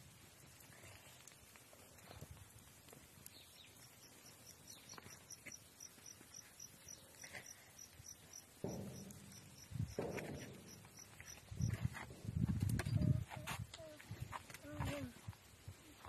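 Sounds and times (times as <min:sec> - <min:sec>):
cricket chirping: 0:03.7 - 0:11.8
low thumps: 0:08.5 - 0:13.6.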